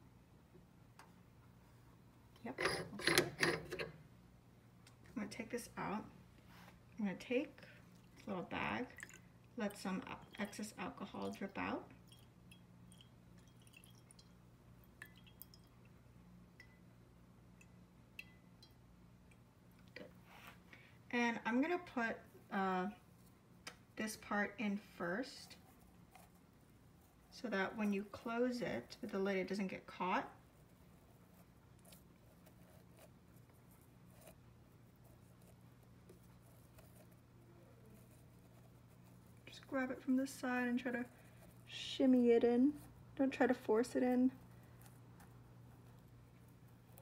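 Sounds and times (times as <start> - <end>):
low steady hum: 0.0 - 47.0
liquid drips plinking: 8.9 - 9.3, 12.0 - 16.0, 17.6 - 19.4.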